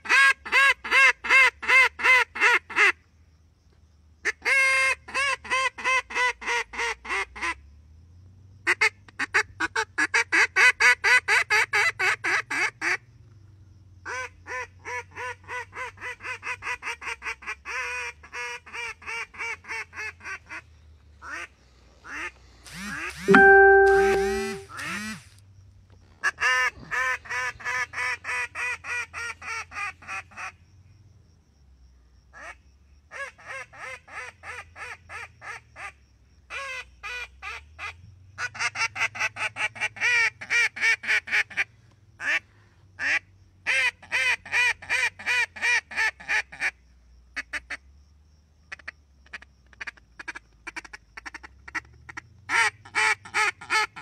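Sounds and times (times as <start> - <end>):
duck call rapid quacks: 0.0 - 3.0, 4.3 - 7.5, 43.0 - 46.8, 49.3 - 54.0.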